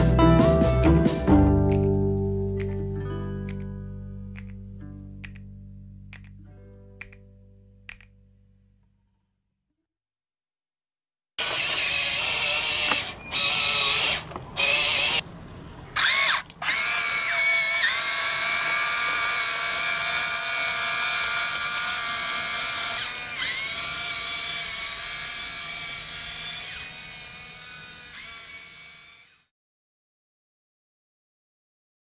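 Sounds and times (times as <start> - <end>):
toy excavator motors whining: 11.4 - 15.2, 16.0 - 29.5.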